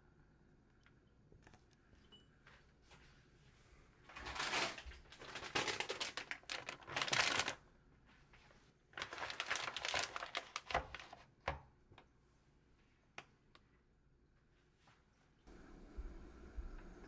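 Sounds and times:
plastic bag crinkling: 0:04.2 - 0:07.6, 0:09.0 - 0:11.3.

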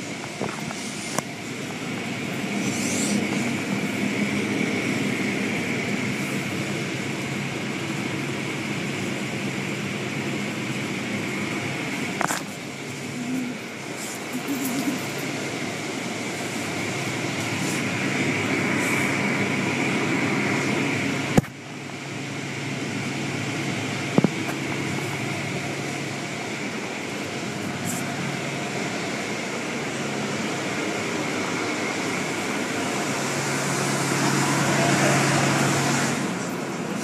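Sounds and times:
low machinery hum: 0:00.0 - 0:37.0.

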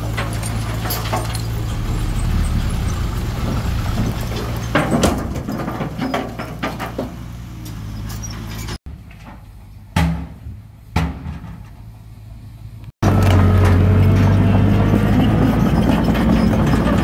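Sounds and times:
diesel engine running: 0:00.0 - 0:08.8, 0:12.0 - 0:17.0
metallic clanks and knocks: 0:00.0 - 0:11.9
heavy bangs: 0:01.0 - 0:07.0.

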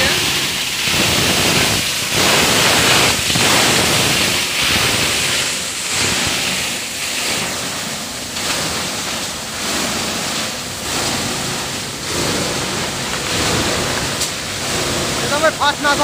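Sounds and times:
plastic grinding machine running: 0:00.0 - 0:16.0.

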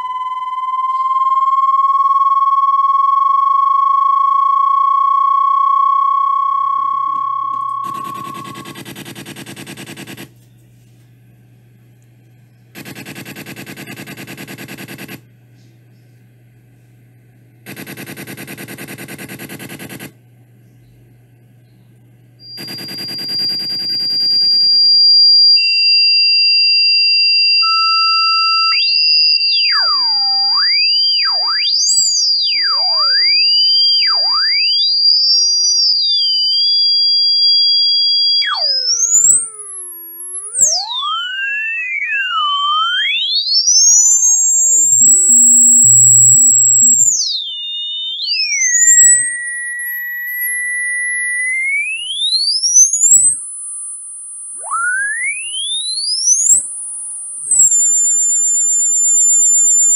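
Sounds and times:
siren-like sweeping tones: 0:00.0 - 0:08.8, 0:22.4 - 0:59.9
high electronic beeps: 0:00.0 - 0:10.2, 0:22.4 - 0:59.9
buzzing electronic pulses: 0:00.0 - 0:10.4, 0:12.5 - 0:15.3, 0:17.6 - 0:20.2, 0:22.4 - 0:59.9
low hum: 0:00.0 - 0:19.4.

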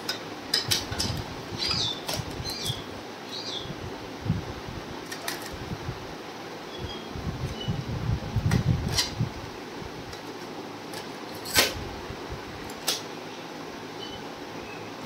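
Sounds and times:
cassette handling rumble: 0:00.0 - 0:02.8.

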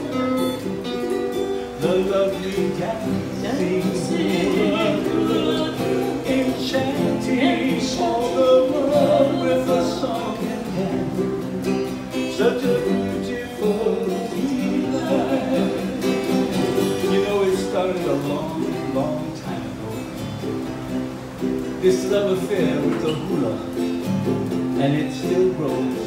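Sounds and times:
slack key acoustic guitar: 0:00.0 - 0:26.0
ukulele playing: 0:00.0 - 0:26.0
man and woman singing duet: 0:01.7 - 0:20.0.

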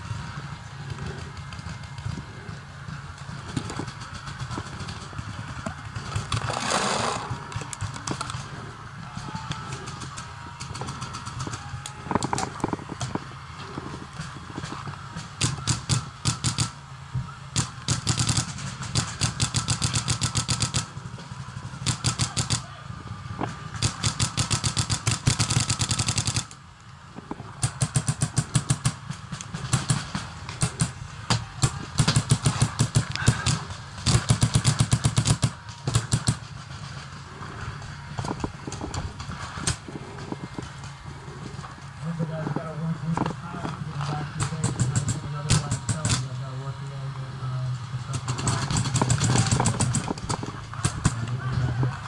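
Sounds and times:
paintball markers firing rapidly: 0:03.3 - 0:08.6, 0:09.2 - 0:13.2, 0:14.6 - 0:16.8, 0:17.5 - 0:21.0, 0:21.8 - 0:22.6, 0:23.7 - 0:26.6, 0:27.6 - 0:36.6, 0:44.4 - 0:46.3, 0:48.1 - 0:51.3.

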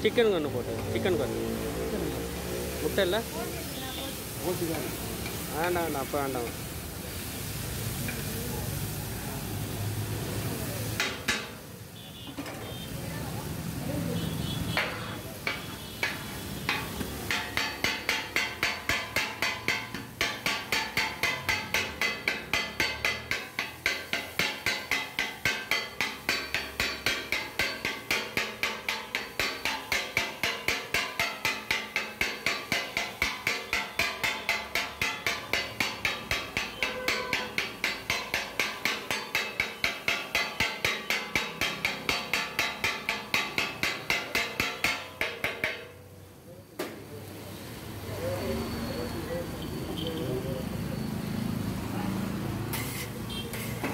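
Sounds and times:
steel tool striking hot griddle: 0:04.2 - 0:07.4, 0:08.0 - 0:08.5, 0:10.9 - 0:12.0, 0:14.7 - 0:46.1, 0:52.7 - 0:53.9.

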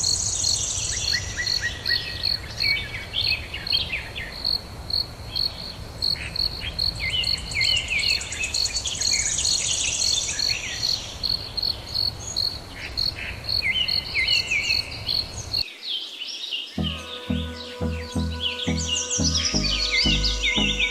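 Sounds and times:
fast high trill: 0:16.8 - 0:20.9.

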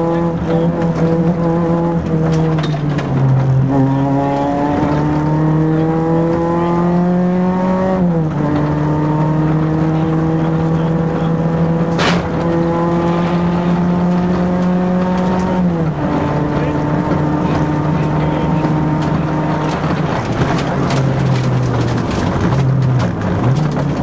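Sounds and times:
car engine accelerating hard: 0:00.0 - 0:24.0
sharp crack: 0:11.9 - 0:12.6.

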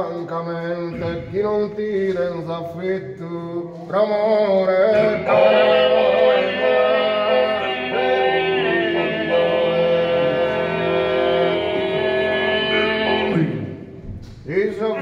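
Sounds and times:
male voices singing in harmony: 0:04.6 - 0:13.7.

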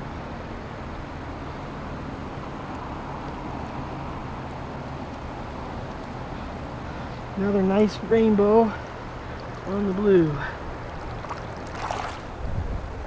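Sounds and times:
shallow river current rushing: 0:08.5 - 0:13.0.

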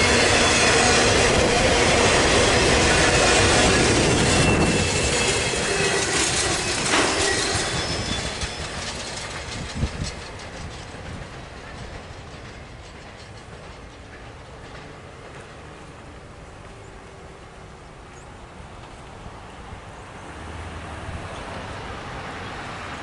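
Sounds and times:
wheel squeal: 0:00.0 - 0:14.2
train wheels clacking on rails: 0:00.0 - 0:19.3.

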